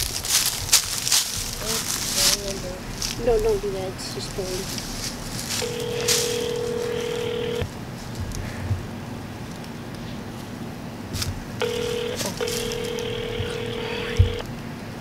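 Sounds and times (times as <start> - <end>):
phone ringback tone: 5.6 - 7.6, 11.6 - 14.4.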